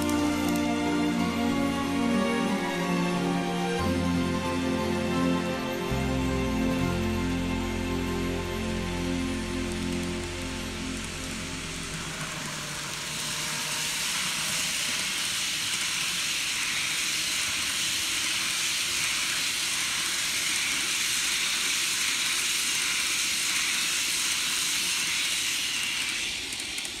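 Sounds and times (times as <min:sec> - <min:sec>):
model train wheels rolling: 0:00.0 - 0:04.0, 0:06.5 - 0:27.0.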